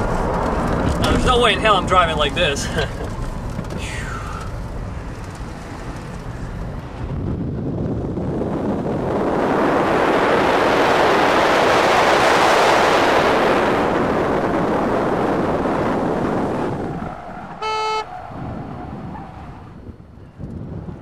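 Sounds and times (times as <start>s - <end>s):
wind and road noise inside car: 0.0s - 21.0s
short horn toot: 17.6s - 18.1s.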